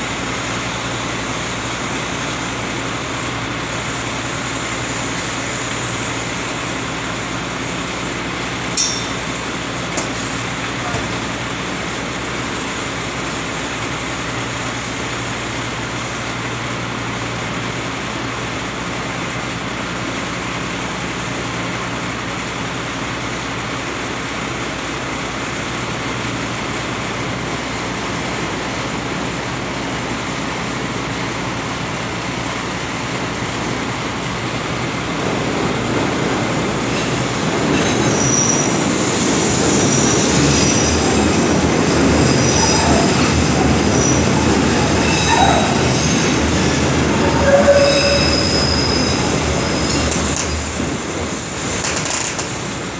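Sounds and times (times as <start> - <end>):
elevated train rumble: 0.0 - 52.9
wheel squeal on rails: 36.9 - 50.8.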